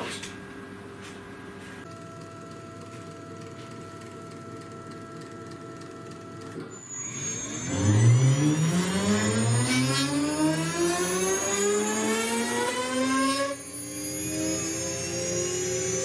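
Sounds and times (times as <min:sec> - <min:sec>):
spindle motor hum: 0:00.4 - 0:13.0
spindle motor rising whine: 0:01.8 - 0:16.0.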